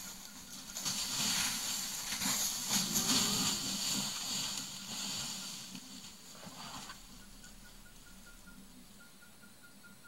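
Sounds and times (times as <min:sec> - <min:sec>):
elephants walking through dry leaves: 0:00.0 - 0:07.2.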